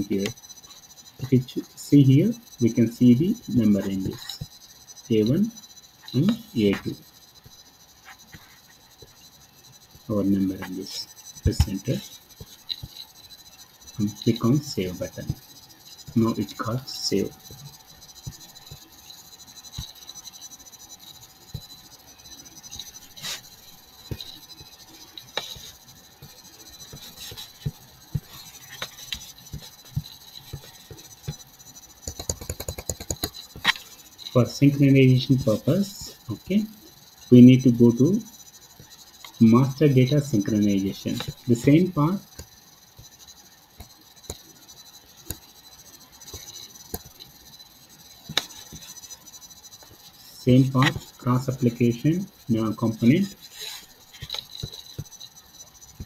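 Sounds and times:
thin high tone: 0.0 - 32.5, 33.1 - 55.8
faint background hum: 0.0 - 56.0
steady hiss: 0.0 - 56.0
computer mouse clicking: 21.5 - 34.4, 45.2 - 47.4, 48.2 - 49.1, 52.9 - 55.3
computer mouse clicks: 32.0 - 33.9.

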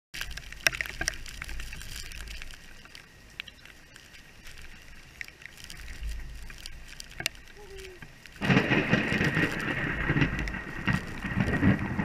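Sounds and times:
rain pattering: 0.1 - 12.0
low rumble: 5.8 - 12.0.

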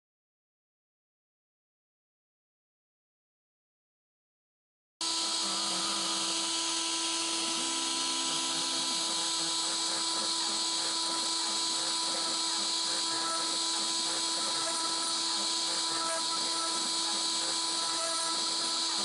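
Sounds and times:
router spindle whining: 5.0 - 19.0.

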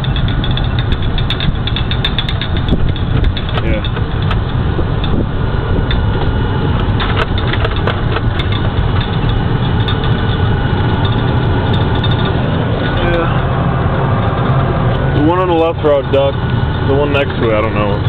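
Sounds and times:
clicks and rattles: 0.0 - 13.0
truck diesel engine rumble: 0.0 - 18.0.

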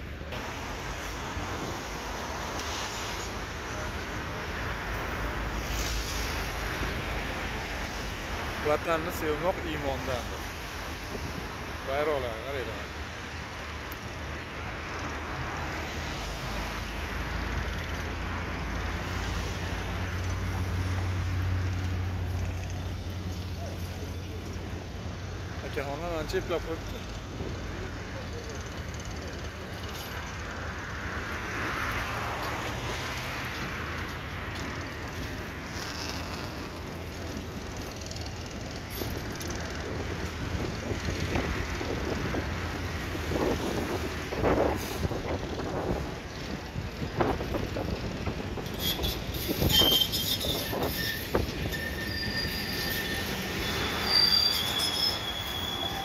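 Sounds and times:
traffic noise: 0.0 - 56.0
wind buffeting microphone: 39.6 - 50.0.

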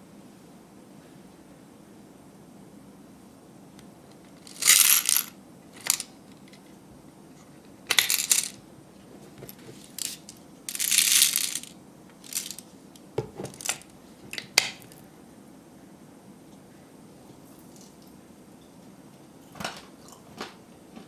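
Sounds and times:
candies rattling against plastic: 4.4 - 6.1, 7.9 - 8.6, 9.8 - 12.6, 13.5 - 15.0.

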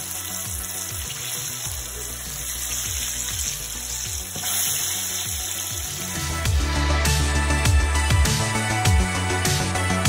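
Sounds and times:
deep-frying sizzle: 0.0 - 6.6.

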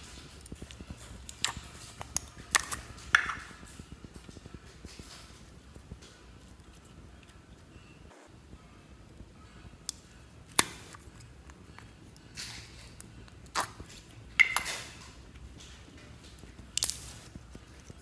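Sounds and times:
slime squishing: 0.0 - 8.0, 9.8 - 18.0
plastic container clicks and snaps: 9.9 - 11.0, 14.4 - 14.9, 16.8 - 17.1.

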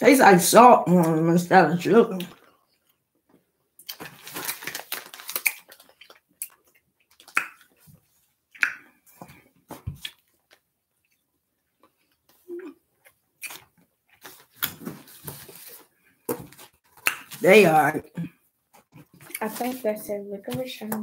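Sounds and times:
plastic candy bag crinkling: 3.8 - 7.4
chewing: 5.3 - 15.3.

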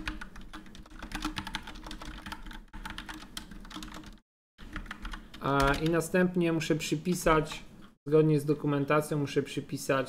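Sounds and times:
computer keyboard typing: 0.0 - 6.0.

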